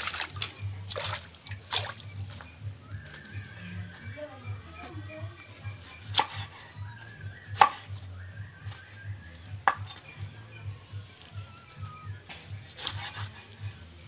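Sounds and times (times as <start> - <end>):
knife chopping on wooden board: 5.7 - 6.6, 7.6 - 8.0, 9.6 - 10.1, 12.3 - 13.5.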